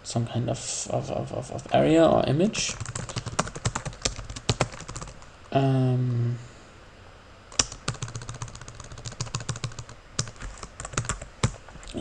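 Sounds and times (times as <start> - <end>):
typing on computer keyboard: 2.7 - 5.2, 7.5 - 11.6.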